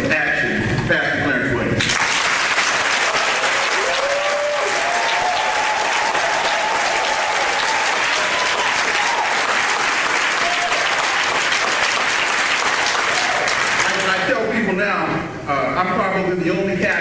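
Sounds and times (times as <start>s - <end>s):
audience applauding: 1.8s - 14.3s.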